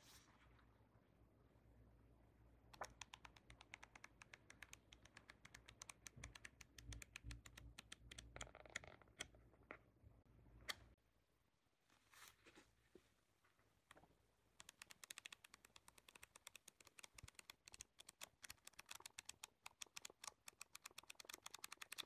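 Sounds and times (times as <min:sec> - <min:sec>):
flipbook pages flicking: 0:14.7 - 0:22.0.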